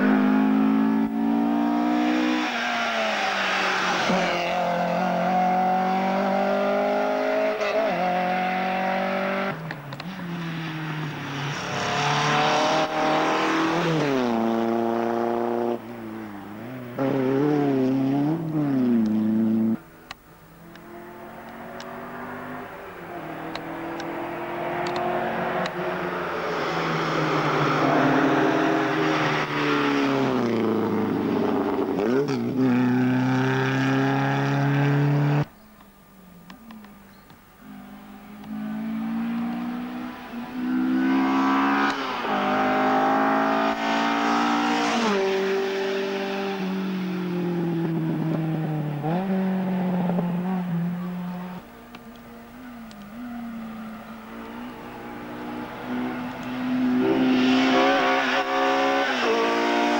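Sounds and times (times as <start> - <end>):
rally car engines at full throttle: 0.0 - 35.6, 36.3 - 59.9.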